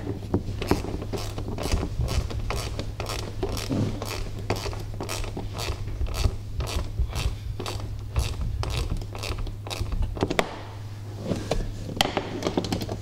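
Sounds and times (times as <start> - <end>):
steady low hum: 0.0 - 13.0
ratchet clicking: 0.6 - 10.6.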